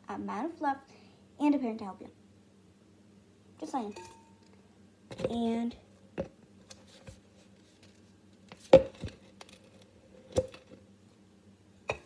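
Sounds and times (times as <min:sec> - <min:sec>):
containers and utensils knocking: 0:03.9 - 0:04.4.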